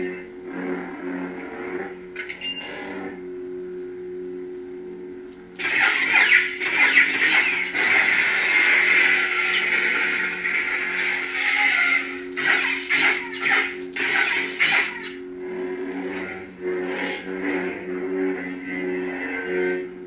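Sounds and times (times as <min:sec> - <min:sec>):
lightsaber hum: 0:00.0 - 0:03.7, 0:04.5 - 0:20.0.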